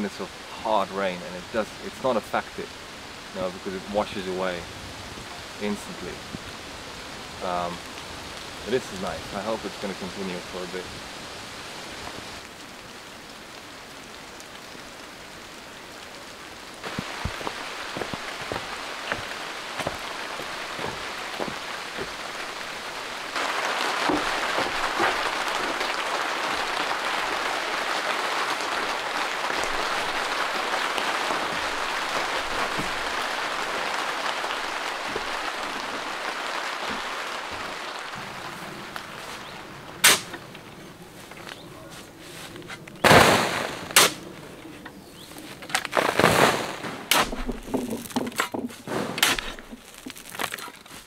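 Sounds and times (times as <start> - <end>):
rain drumming on plastic tarpaulin: 0.0 - 44.5, 45.3 - 51.0
steady rain: 0.0 - 51.0
heavy drops ticking: 15.4 - 39.2.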